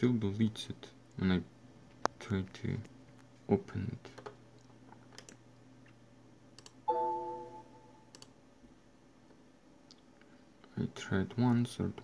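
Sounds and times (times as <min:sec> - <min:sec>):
computer mouse clicks: 0:04.2 - 0:05.4, 0:06.6 - 0:06.8, 0:08.1 - 0:08.4
system chime chord: 0:06.9 - 0:08.1.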